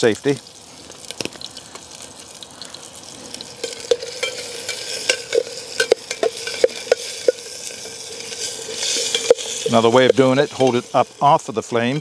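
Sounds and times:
sausages sizzling in oil: 0:00.0 - 0:12.0
metal pot clinks: 0:03.6 - 0:12.0.

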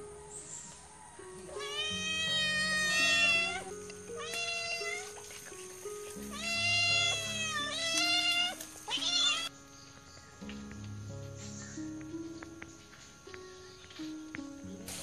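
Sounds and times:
cats meowing: 0:01.4 - 0:09.5.

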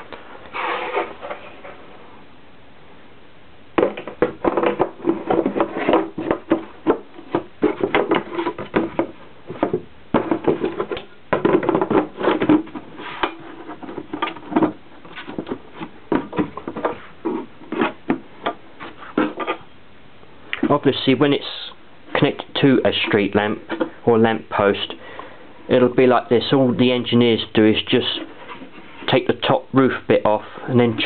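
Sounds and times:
plastic housing knocks and scrapes: 0:03.8 - 0:19.6.

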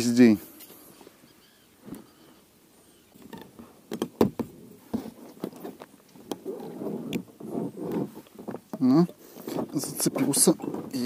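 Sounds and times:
rustling: 0:04.4 - 0:11.0.

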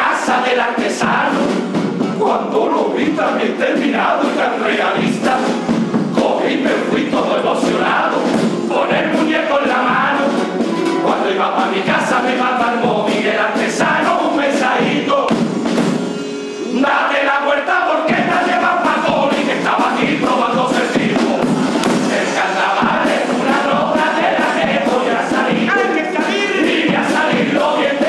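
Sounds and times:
men singing together: 0:00.0 - 0:15.5, 0:16.6 - 0:28.0
snare drum: 0:00.0 - 0:16.1, 0:18.1 - 0:28.0
guitar: 0:05.0 - 0:13.0, 0:14.8 - 0:27.6.

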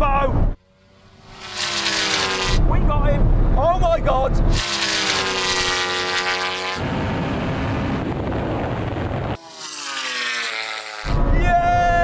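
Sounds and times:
engines accelerating: 0:00.0 - 0:12.0
high-revving engine: 0:00.6 - 0:03.6, 0:04.4 - 0:11.9
rush of wind: 0:06.8 - 0:09.4, 0:11.1 - 0:12.0.

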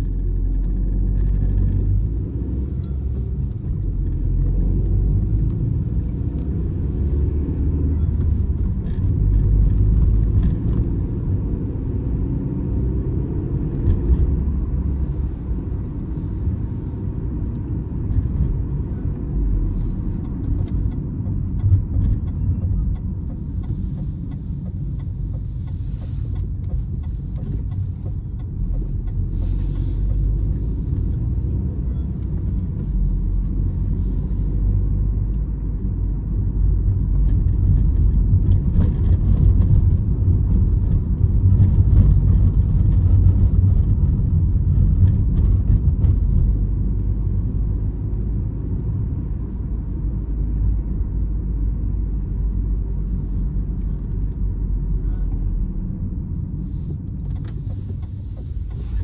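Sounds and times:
car engine rumble: 0:00.0 - 0:59.0
road noise: 0:00.0 - 0:59.0.

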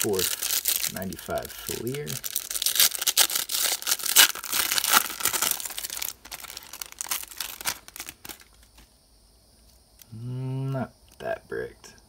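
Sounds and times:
foil wrapper crinkling: 0:00.0 - 0:08.9.

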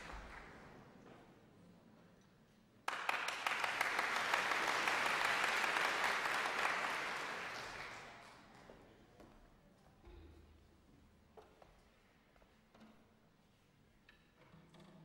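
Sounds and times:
audience applauding: 0:00.0 - 0:00.7, 0:02.9 - 0:08.4.

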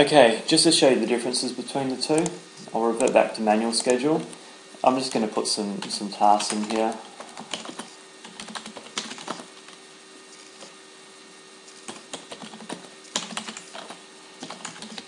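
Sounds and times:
typing on computer keyboard: 0:07.4 - 0:09.5, 0:11.7 - 0:15.0.

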